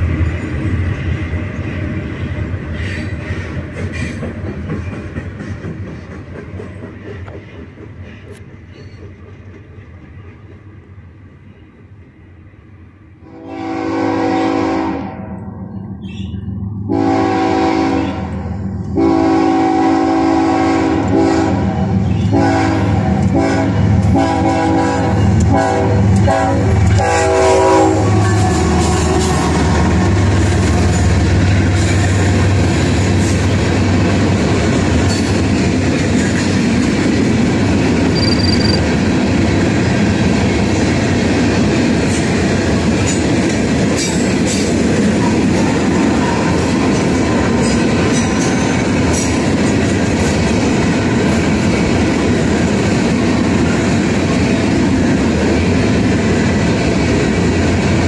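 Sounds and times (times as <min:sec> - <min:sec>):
locomotive horn blasts: 0:13.2 - 0:15.3, 0:16.9 - 0:28.8, 0:38.2 - 0:38.8
freight cars on rails: 0:21.1 - 0:58.0
locomotive engine: 0:37.2 - 0:39.6.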